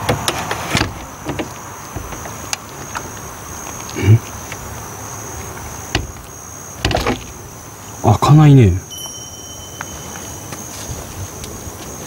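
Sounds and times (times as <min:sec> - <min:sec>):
doorknob clicking and rattling: 0:00.0 - 0:03.2, 0:05.6 - 0:07.4.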